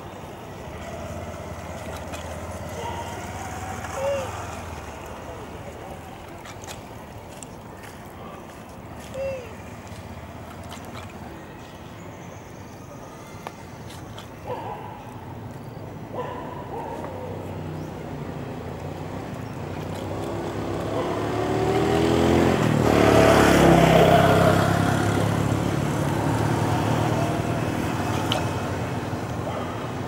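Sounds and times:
vehicle engine approaching: 0:00.0 - 0:11.3, 0:17.3 - 0:30.0.

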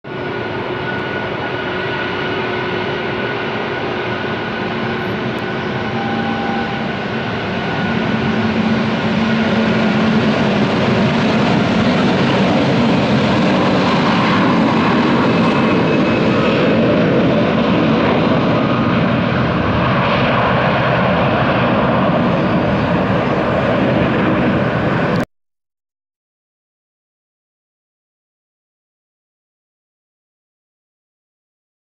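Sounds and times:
jet engines spooling up: 0:00.1 - 0:25.2.

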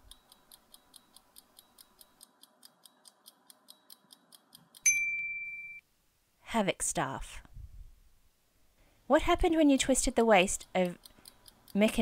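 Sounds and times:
clock ticking: 0:00.0 - 0:04.9, 0:09.7 - 0:12.0.

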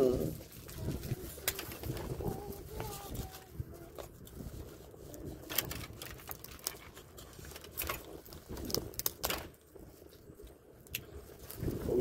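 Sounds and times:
crab shell cracking by hand: 0:07.7 - 0:09.5.

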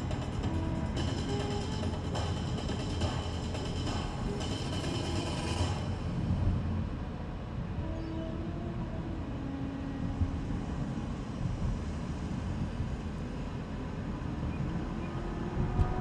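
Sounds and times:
car engine drone: 0:00.0 - 0:16.0
road noise: 0:00.0 - 0:16.0.

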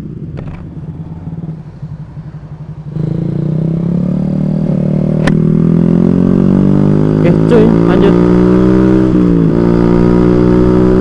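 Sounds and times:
scooter engine revving: 0:02.9 - 0:11.0.

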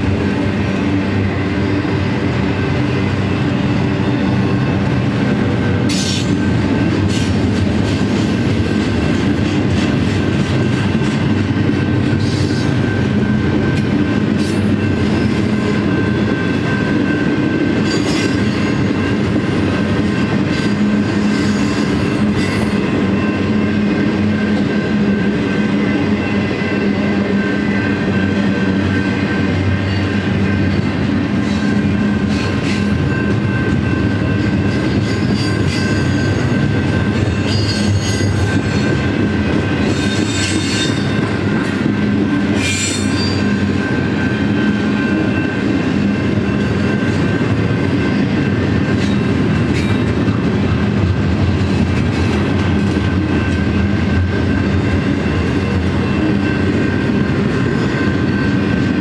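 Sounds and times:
train wheels rumbling on rail: 0:00.0 - 0:59.0
sharp squeals or clanks: 0:15.8 - 0:20.2, 0:42.6 - 0:44.4.

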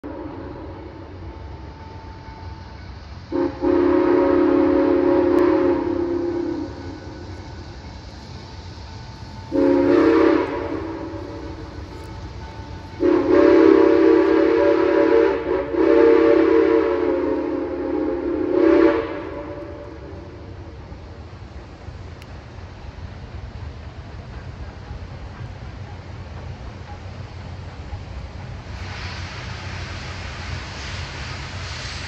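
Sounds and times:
steam whistle blasts: 0:00.0 - 0:07.8, 0:08.9 - 0:20.5.

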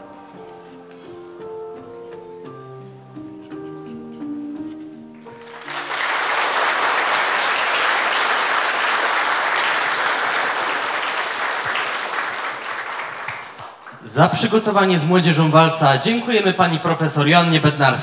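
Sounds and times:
waltz music: 0:00.0 - 0:08.0
crowd applauding: 0:05.3 - 0:14.8.

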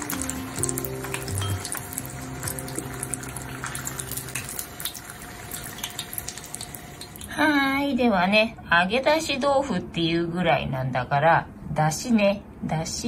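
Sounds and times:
soft background music: 0:00.0 - 0:06.9
tofu sizzling in oil: 0:00.0 - 0:07.2.

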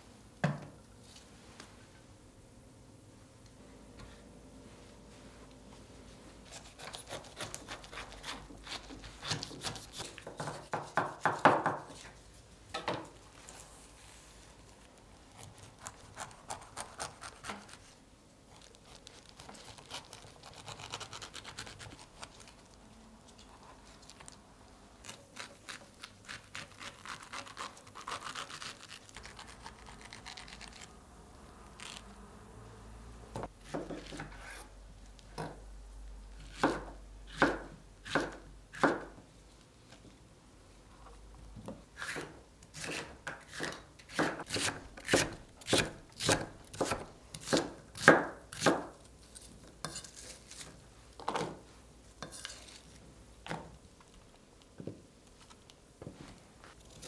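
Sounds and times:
knife slicing and scraping pineapple: 0:06.4 - 0:12.2, 0:15.4 - 0:22.6, 0:25.0 - 0:30.9, 0:42.0 - 0:50.8, 0:52.2 - 0:53.0.

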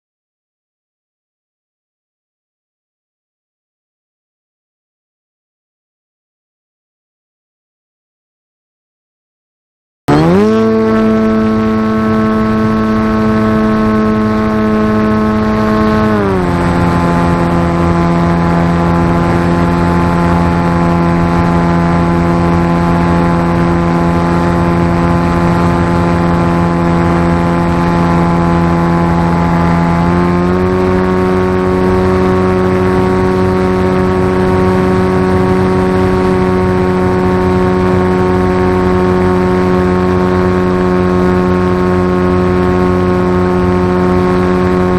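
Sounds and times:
model plane motor and propeller: 0:10.1 - 0:44.9.

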